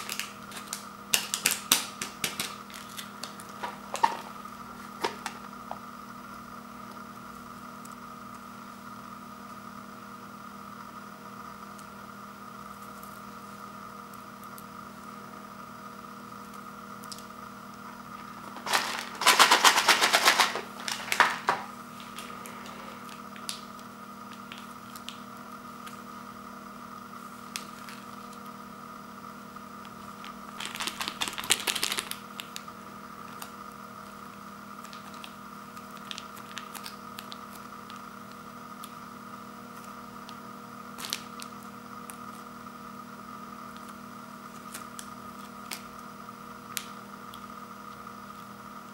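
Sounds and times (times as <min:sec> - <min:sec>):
plastic packets crinkling: 0:00.0 - 0:04.3, 0:18.3 - 0:23.6, 0:30.2 - 0:32.6, 0:34.9 - 0:38.0.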